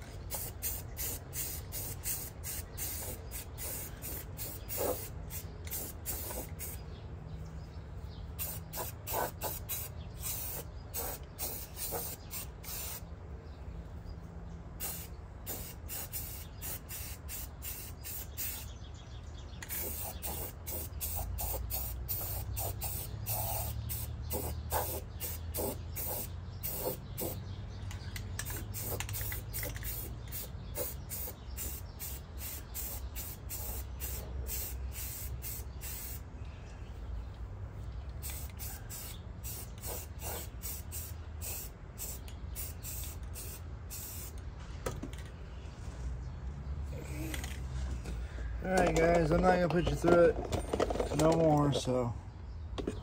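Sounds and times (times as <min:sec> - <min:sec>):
hand tools clicking and knocking: 0:48.8 - 0:51.9.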